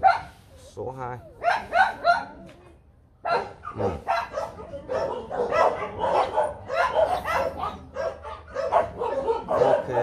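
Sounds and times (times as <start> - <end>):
puppies barking and yipping: 1.3 - 2.5, 3.3 - 10.0.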